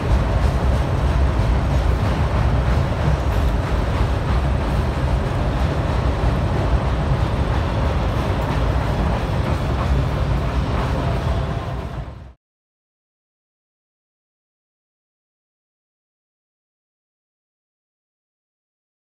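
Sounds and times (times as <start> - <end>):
freight train wheels rumbling: 0.0 - 12.4.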